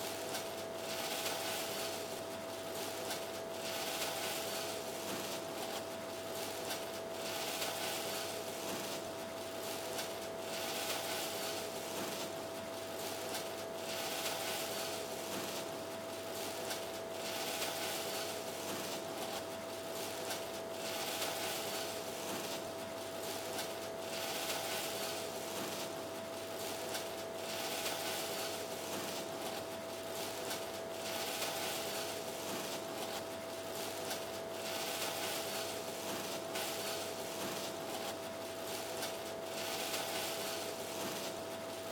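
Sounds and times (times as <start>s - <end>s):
breadcrumbs and gloves rustling: 0.0s - 41.9s
steady hiss: 0.0s - 41.9s.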